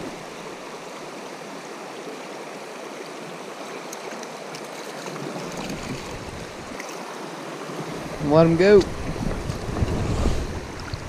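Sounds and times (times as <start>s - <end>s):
creek water running over stones: 0.0s - 11.0s
low microphone rumble: 8.9s - 11.0s.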